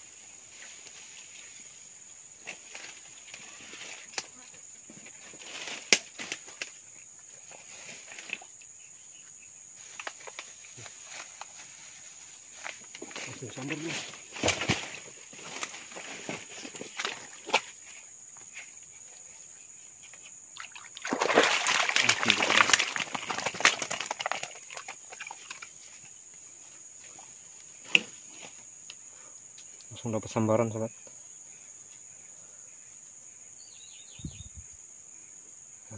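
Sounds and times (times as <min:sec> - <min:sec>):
insects chirring: 0:00.0 - 0:35.9
water splashes and drips: 0:20.6 - 0:25.7.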